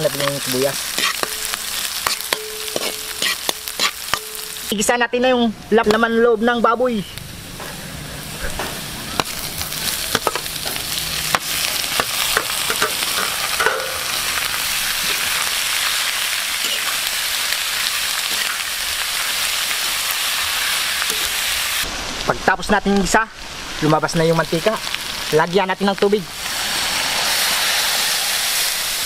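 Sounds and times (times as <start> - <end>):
meat sizzling in oil: 0.0 - 5.2, 5.9 - 29.0
metal ladle scraping wok: 0.2 - 4.7, 8.4 - 21.7.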